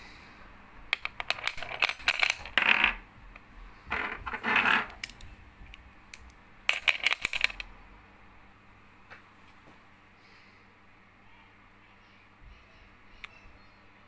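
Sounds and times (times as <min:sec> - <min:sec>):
brass parts clattering on scale: 0:03.9 - 0:05.0, 0:06.7 - 0:07.6.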